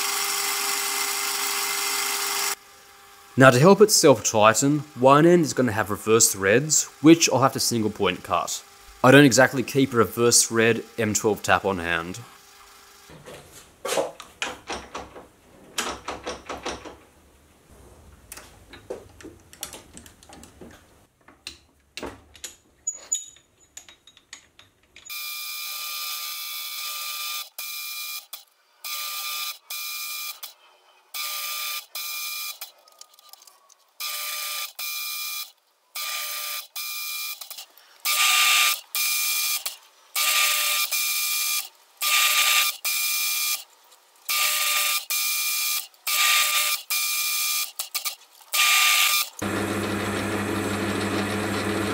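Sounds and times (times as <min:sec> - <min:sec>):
faint clicks and knocks: 0:18.2 - 0:25.1
metal lathe whining: 0:48.6 - 0:51.9.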